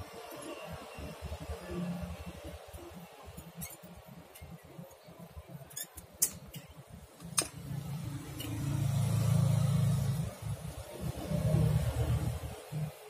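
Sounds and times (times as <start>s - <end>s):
small parts clicking and tapping: 5.7s - 7.6s.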